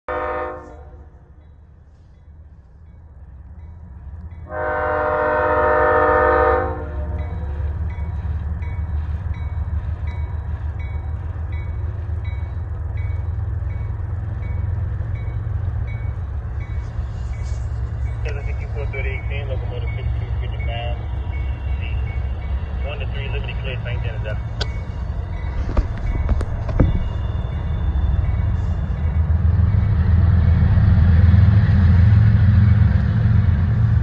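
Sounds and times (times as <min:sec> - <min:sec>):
locomotive air horn blasts: 0:00.1 - 0:01.2, 0:04.4 - 0:07.2
low rumble of train: 0:00.1 - 0:34.0.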